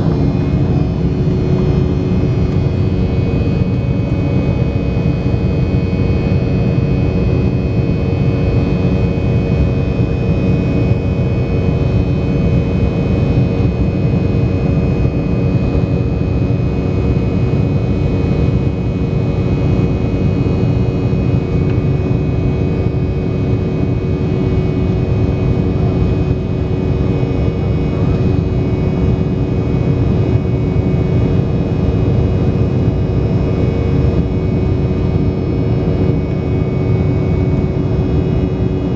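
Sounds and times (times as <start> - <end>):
rushing air: 0.0 - 4.0
jet engine noise: 0.0 - 38.9
steady whining tones: 0.0 - 38.9.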